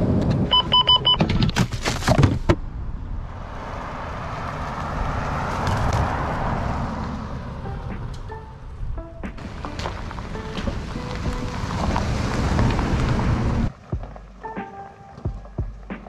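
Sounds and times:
short electronic beeps: 0:00.5 - 0:01.2
van driving past: 0:03.2 - 0:14.4.

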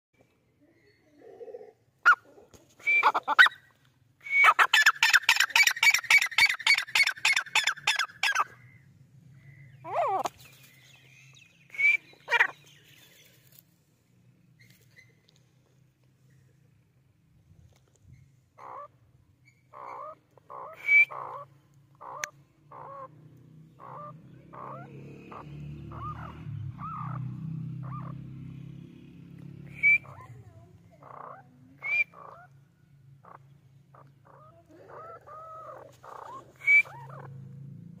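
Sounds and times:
francolin clucking calls: 0:02.0 - 0:03.7, 0:04.3 - 0:08.8, 0:09.4 - 0:13.2, 0:18.1 - 0:28.2, 0:29.7 - 0:37.4.

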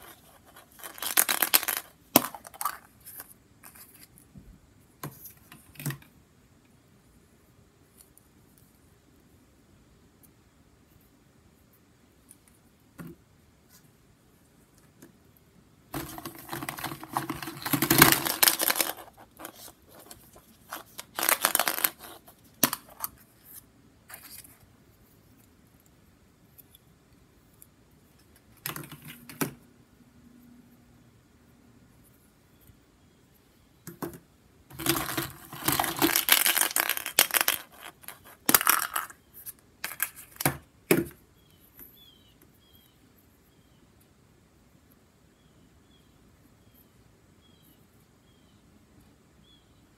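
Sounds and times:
plastic eggs clattering: 0:00.0 - 0:02.9, 0:16.0 - 0:23.1, 0:34.7 - 0:39.2, 0:39.8 - 0:40.6.

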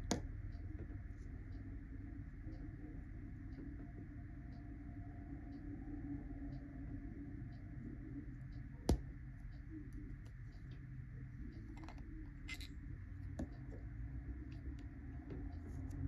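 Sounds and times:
low steady hum: 0:00.0 - 0:16.0
pen cap clicks and ticks: 0:11.7 - 0:12.7.

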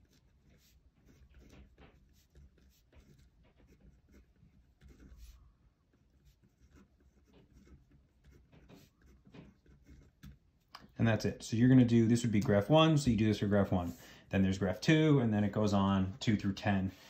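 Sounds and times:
pen scratching on paper: 0:00.0 - 0:10.6.

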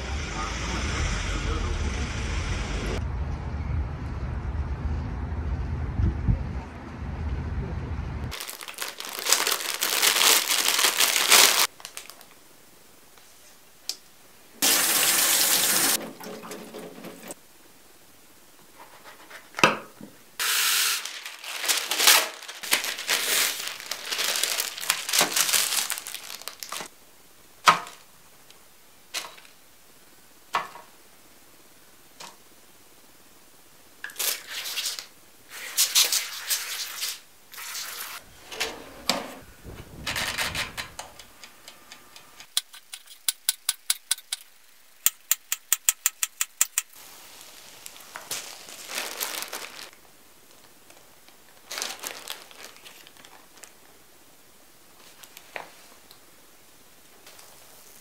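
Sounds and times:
crinkling and rustling: 0:08.3 - 0:12.4, 0:21.0 - 0:26.9, 0:34.0 - 0:43.3, 0:46.8 - 0:54.0, 0:54.9 - 0:56.2
quick evenly spaced clicking: 0:42.4 - 0:47.0.

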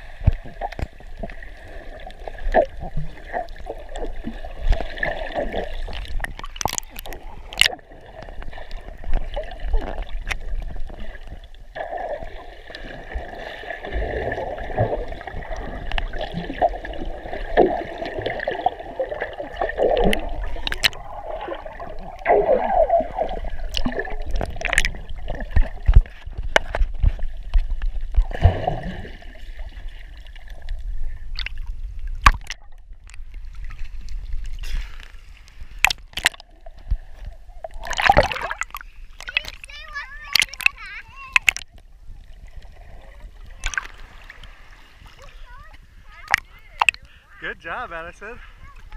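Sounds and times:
underwater gurgling and bubbles: 0:00.0 - 0:47.3
sharp clicks: 0:40.4 - 0:41.7.

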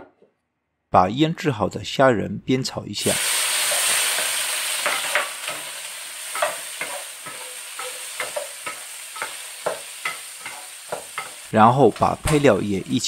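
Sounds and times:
shrimp sizzling in hot oil: 0:03.0 - 0:13.0
spatula scraping and tapping wok: 0:03.5 - 0:13.0.

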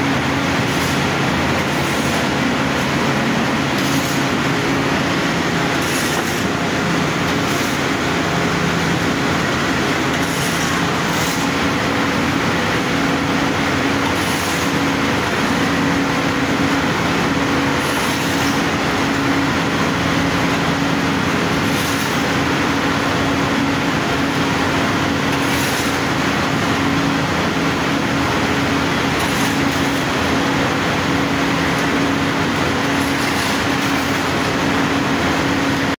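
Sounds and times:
boiler machinery drone: 0:00.0 - 0:36.0
shovels scraping sawdust: 0:03.8 - 0:04.3.

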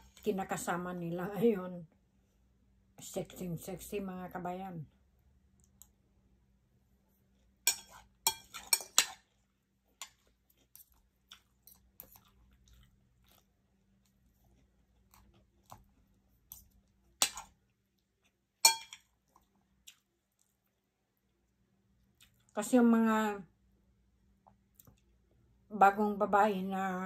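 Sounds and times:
chewing: 0:07.3 - 0:20.9, 0:22.0 - 0:22.6, 0:24.4 - 0:25.2
cutlery clinking on a plate: 0:07.7 - 0:09.2, 0:18.6 - 0:19.1.

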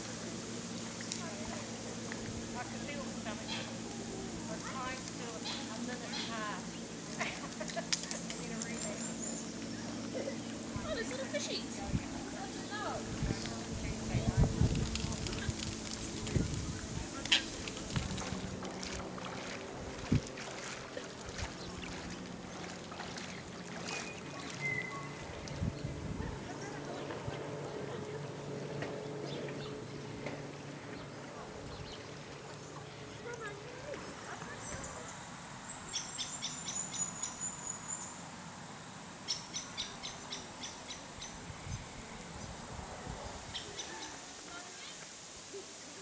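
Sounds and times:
insect chorus buzzing: 0:00.0 - 0:25.8, 0:31.7 - 0:46.0
water lapping against pilings: 0:00.0 - 0:36.2.

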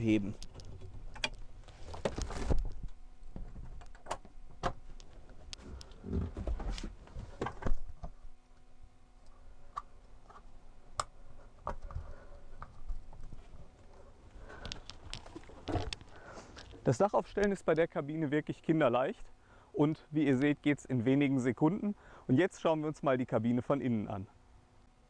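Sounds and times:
camper roof frame clicking and rattling: 0:00.5 - 0:05.0.

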